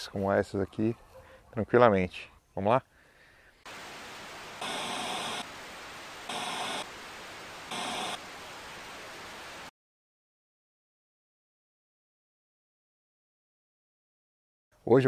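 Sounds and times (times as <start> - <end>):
static bursts: 3.7 - 9.7
static hiss: 3.7 - 9.7.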